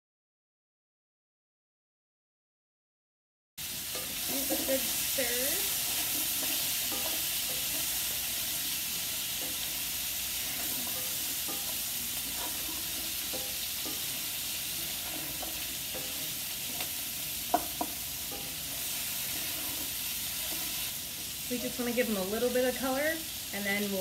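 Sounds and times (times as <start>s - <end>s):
spatula scraping pan: 3.6s - 24.0s
vegetables sizzling in oil: 3.6s - 24.0s.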